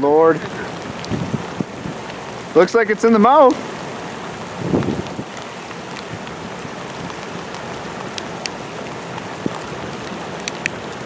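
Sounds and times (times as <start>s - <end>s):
fast-flowing river water rushing: 0.0s - 11.0s
faint clicks: 10.4s - 10.8s.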